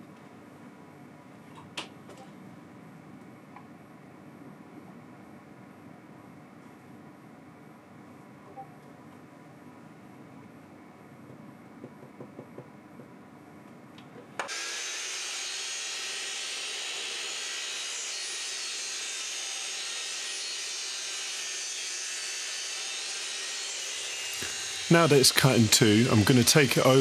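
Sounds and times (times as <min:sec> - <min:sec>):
power saw whirring: 0:14.5 - 0:27.0.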